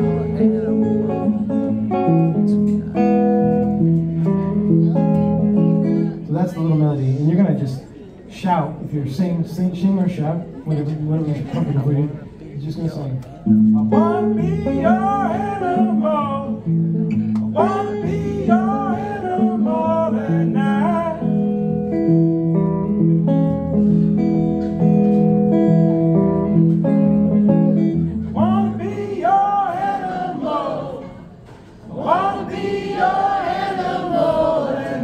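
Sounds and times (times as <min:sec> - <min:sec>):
man singing: 0:00.0 - 0:01.6, 0:13.9 - 0:16.8, 0:17.4 - 0:21.7, 0:28.4 - 0:30.6
guitar chords: 0:00.0 - 0:06.3, 0:13.4 - 0:31.4.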